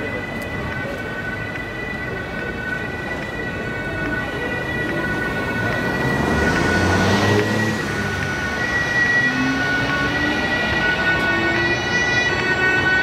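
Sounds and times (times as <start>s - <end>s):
vehicle running noise: 0.0s - 13.0s.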